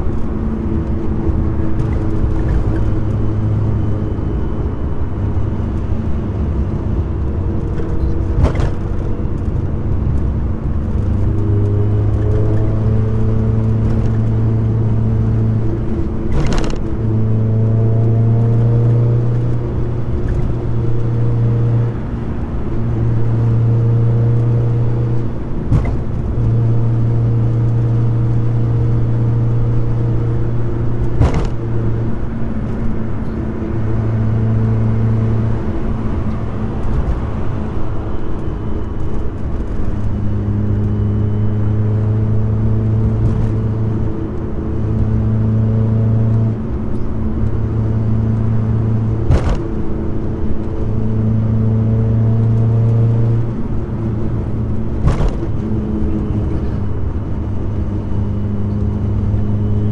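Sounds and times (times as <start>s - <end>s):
car engine drone: 0.0s - 59.9s
road noise: 0.0s - 59.9s.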